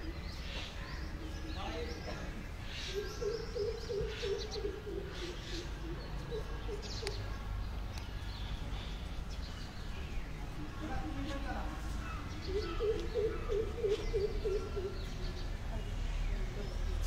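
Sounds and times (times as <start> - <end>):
pigeon cooing: 3.0 - 7.2, 12.5 - 15.2.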